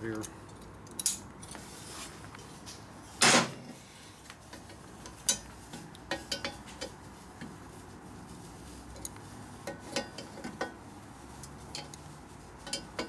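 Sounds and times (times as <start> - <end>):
steel tool scraping exhaust pipe: 8.8 - 13.0.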